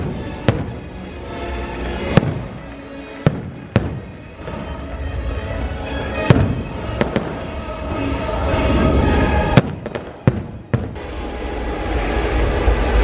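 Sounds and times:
fireworks bangs: 0.0 - 5.0, 6.1 - 11.4
music playing: 0.0 - 13.0.

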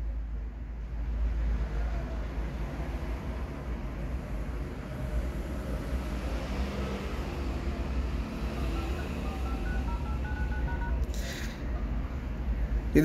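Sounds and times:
touch-tone keypad beeps: 8.4 - 11.6.

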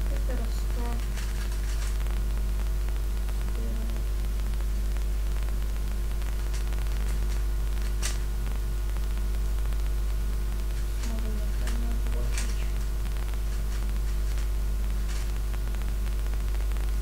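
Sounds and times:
electrical hum and hiss: 0.0 - 17.0
puzzle cube layers clicking: 0.8 - 2.0, 6.3 - 8.3, 10.7 - 15.4.

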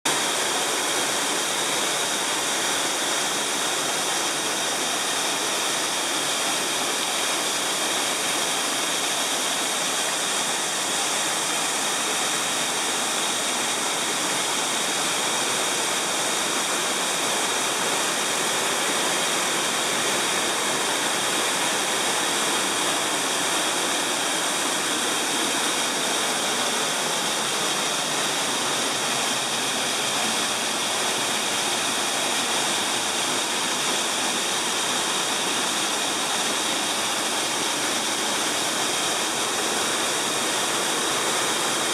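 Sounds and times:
waterfall rushing into pool: 0.1 - 41.9.

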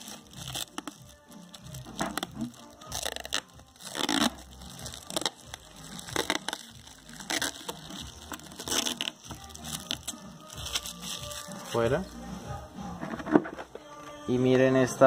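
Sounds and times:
plastic film peeling and crinkling: 0.0 - 11.9.

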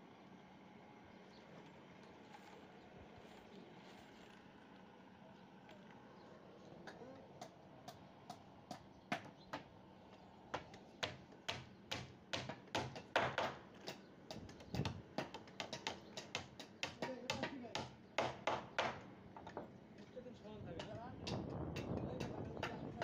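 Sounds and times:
hammer striking nails into wood: 10.6 - 13.6, 14.3 - 19.0.

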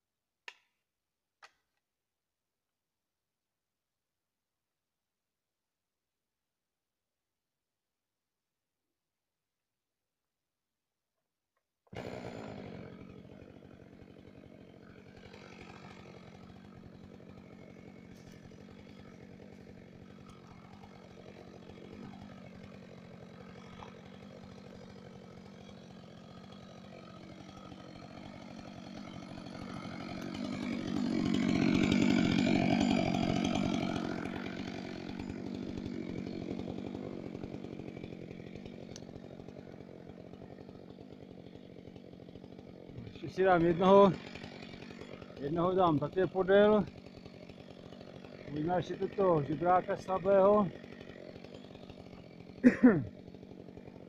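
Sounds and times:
chainsaw engine idling: 11.9 - 54.0.

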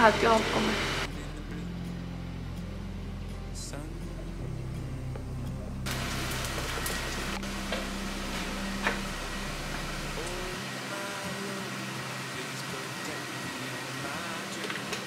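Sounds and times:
low steady hum: 0.0 - 14.2
steady hiss: 5.9 - 15.0.

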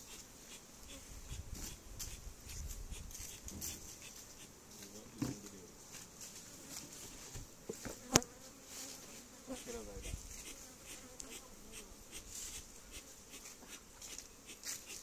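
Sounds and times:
bees buzzing: 0.0 - 15.0.

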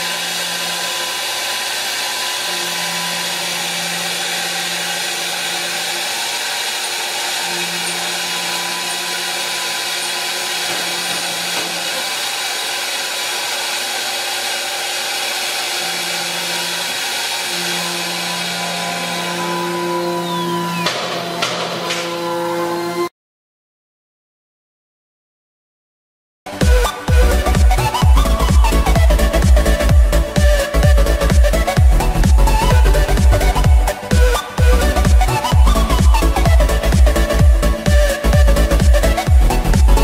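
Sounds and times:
router spindle cutting hiss: 0.0 - 22.0.

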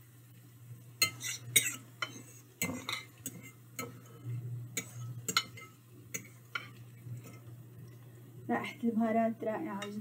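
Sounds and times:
faint low hum: 0.0 - 10.0
spoon clinking against ceramic bowl: 4.8 - 7.4.

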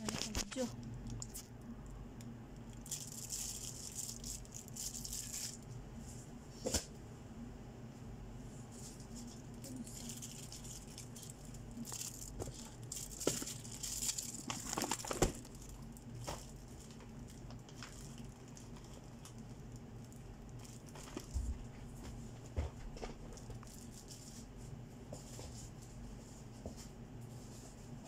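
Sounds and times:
plastic bags crinkling: 2.6 - 5.7, 9.7 - 21.8, 23.3 - 24.4.

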